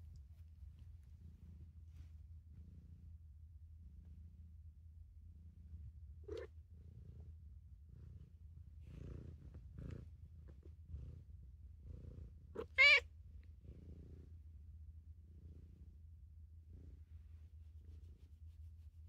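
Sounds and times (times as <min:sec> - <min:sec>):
cat purring: 0:00.1 - 0:04.6, 0:05.3 - 0:14.4
cat meowing: 0:12.6 - 0:13.1.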